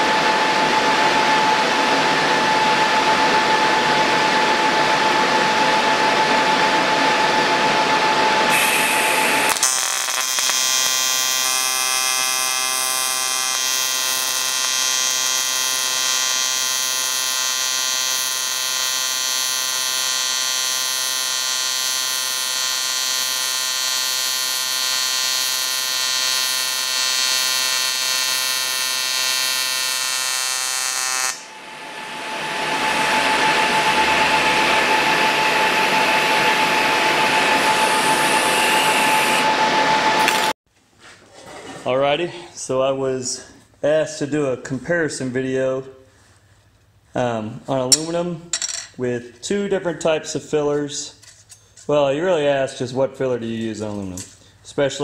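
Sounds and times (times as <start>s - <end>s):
welding arc buzzing: 8.5s - 39.5s.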